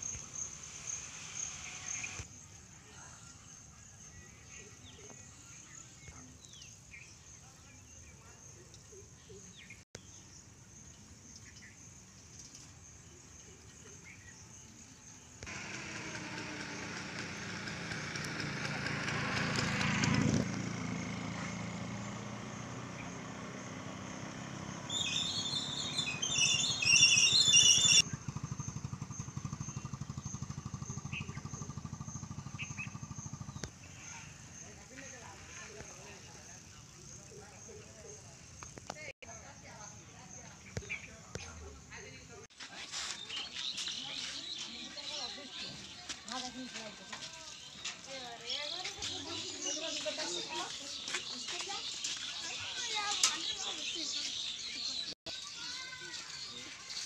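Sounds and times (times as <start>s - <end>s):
motorcycle engine passing: 15.2s - 38.6s
bird chirps: 24.8s - 35.2s, 42.7s - 57.0s
loud shrill sound: 26.6s - 28.0s.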